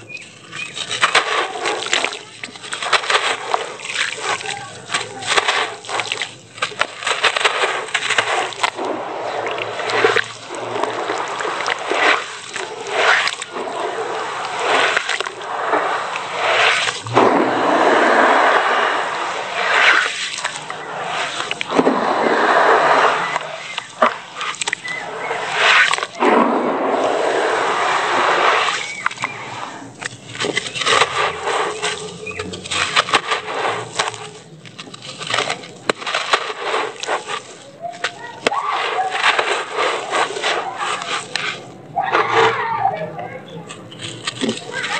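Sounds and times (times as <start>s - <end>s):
crumbs falling into tub: 0.0s - 27.2s, 27.8s - 42.6s, 43.7s - 44.9s
crumbling dry cement lump: 0.0s - 42.7s, 43.5s - 44.9s
wet splashing and sloshing: 0.0s - 42.7s, 43.6s - 44.9s
hands swishing through slurry: 0.0s - 44.9s
small clicks of crumbles breaking: 30.0s - 41.6s, 43.6s - 44.9s.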